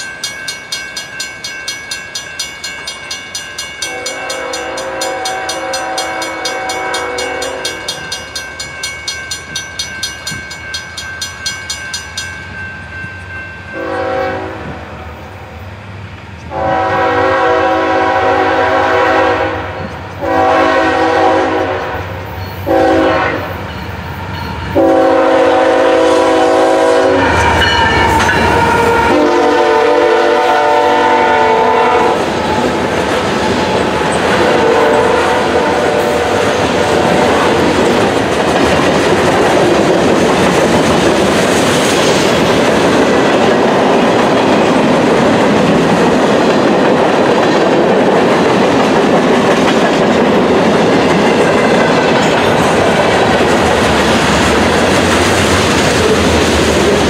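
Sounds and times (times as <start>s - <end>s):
crossing signal bell ringing: 0.0s - 14.3s, 22.2s - 25.4s, 27.2s - 29.3s, 51.2s - 53.2s
locomotive rumbling past: 2.1s - 57.0s
train air horn: 3.8s - 8.0s, 13.8s - 15.2s, 16.5s - 22.1s, 22.7s - 23.6s, 24.8s - 32.7s, 34.3s - 37.7s.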